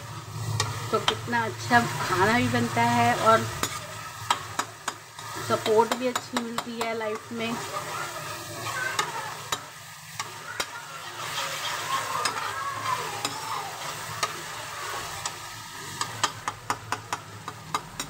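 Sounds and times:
metal spatula scraping pan: 0.0 - 17.2
masala sizzling in oil: 0.0 - 18.0
spatula clicking against pan: 5.6 - 7.4, 9.0 - 10.8, 12.2 - 12.4, 16.0 - 18.0.

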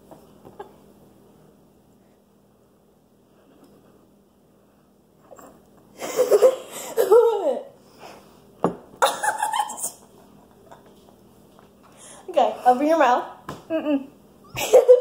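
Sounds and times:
girls giggling and laughing: 6.0 - 7.6, 9.0 - 11.3, 13.7 - 15.0.

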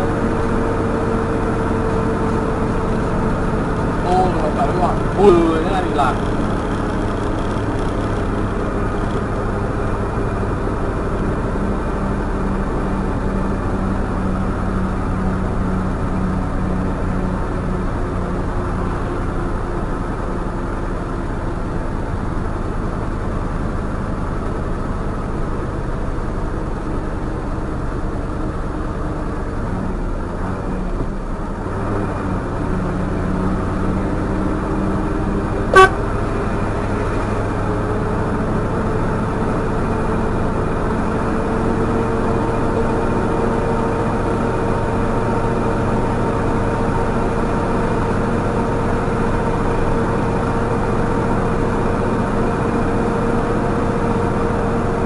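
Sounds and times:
truck engine droning: 0.0 - 55.0
truck horn toot: 35.7 - 36.4.

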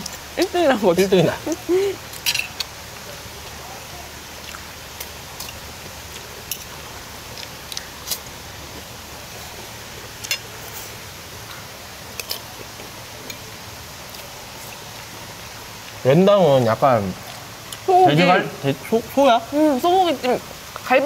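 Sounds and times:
steady background hiss: 0.0 - 21.0
cutlery clinking on plates: 2.2 - 2.7.

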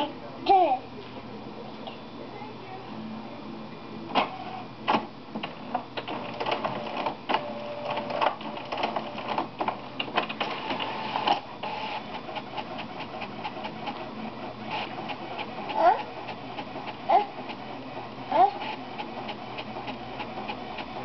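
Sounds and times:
printer motor whine: 3.0 - 21.0
printer clicking and clacking: 4.1 - 17.7, 18.6 - 21.0.

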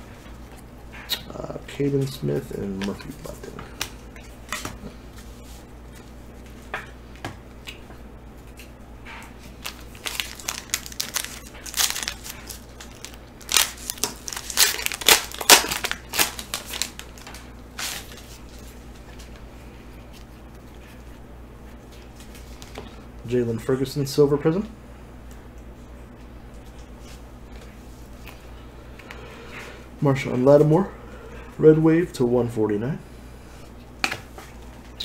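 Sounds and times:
foil wrapper crinkling and tearing: 9.5 - 18.6.

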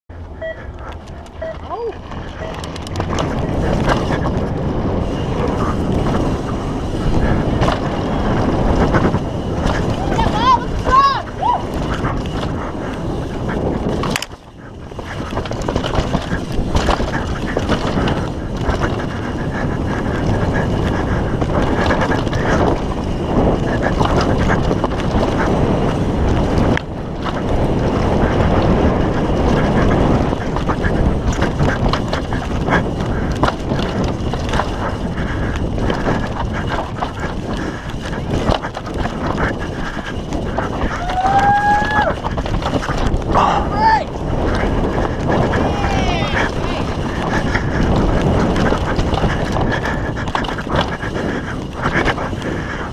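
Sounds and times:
bike rattling over bumpy ground: 0.1 - 52.9
wind buffeting microphone: 0.1 - 52.9
high-pitched tone: 0.3 - 2.7.

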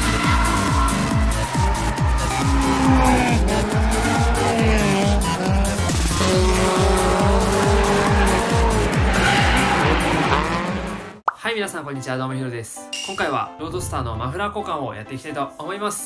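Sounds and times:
tyres squealing: 0.0 - 10.9.

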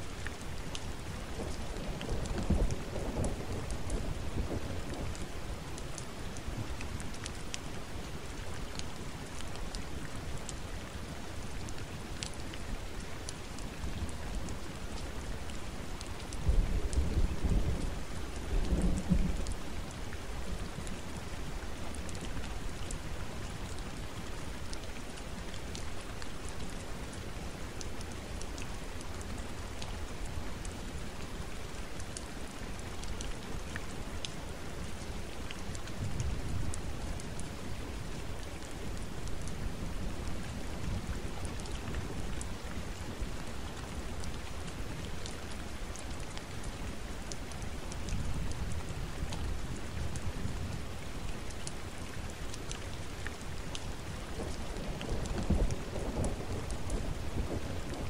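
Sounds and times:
steady rain falling: 0.0 - 58.0
raindrops ticking: 31.5 - 58.0.

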